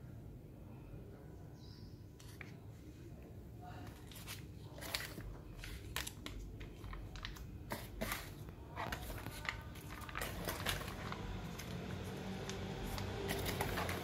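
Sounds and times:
foil sachets crinkling: 0:03.8 - 0:14.0.

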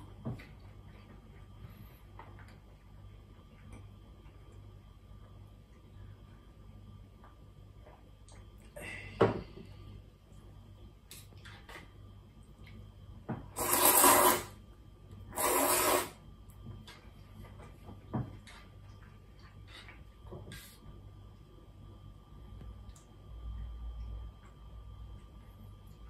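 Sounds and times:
slurping noodles: 0:13.6 - 0:14.6, 0:15.3 - 0:16.2.

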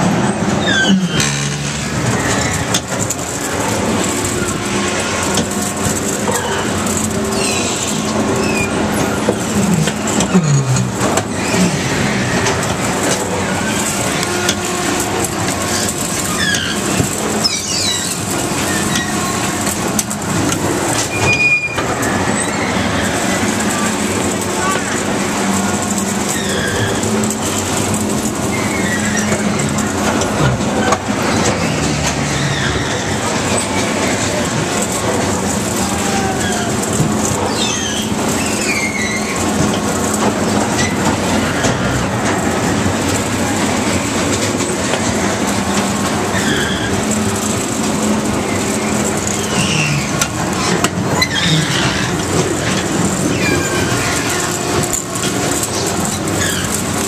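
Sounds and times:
carnival ride rumble and rattle: 0:00.0 - 0:57.0
short high squeals: 0:00.6 - 0:02.8, 0:15.7 - 0:19.3, 0:26.3 - 0:27.6, 0:37.4 - 0:39.4.

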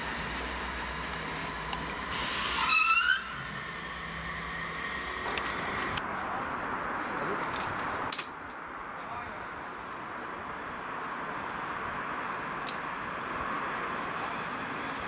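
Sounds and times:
electric locomotive humming: 0:00.0 - 0:08.1, 0:08.8 - 0:15.0
compressed air hiss with whistle: 0:02.1 - 0:03.3.

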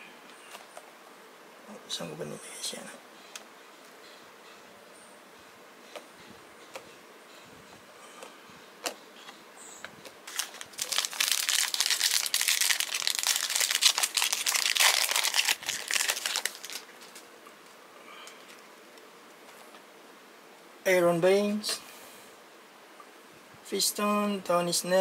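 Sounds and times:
plastic wrapping crinkling: 0:10.2 - 0:17.3.

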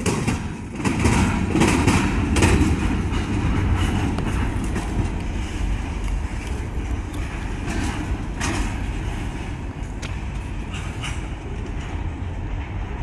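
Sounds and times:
sharp clicks from rail joints: 0:00.0 - 0:13.0
train wheels rumbling on track: 0:00.0 - 0:13.0.

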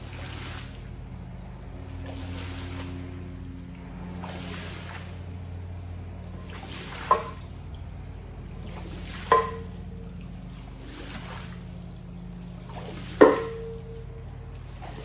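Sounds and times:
squeegee swishing water from rug: 0:00.0 - 0:13.8, 0:14.6 - 0:15.0
steady low hum: 0:00.0 - 0:15.0.

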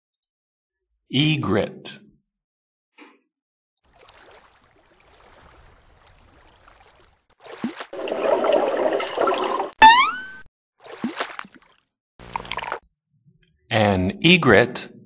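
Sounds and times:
cartoon bubbling water: 0:03.9 - 0:12.8.

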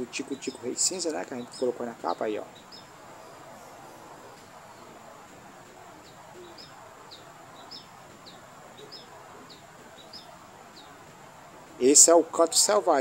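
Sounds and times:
finch singing high chirps: 0:00.3 - 0:05.0, 0:06.0 - 0:11.0.

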